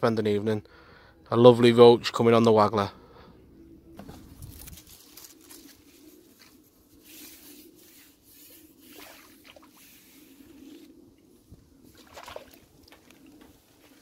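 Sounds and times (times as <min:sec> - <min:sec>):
small water splashes: 0:11.9 - 0:13.1.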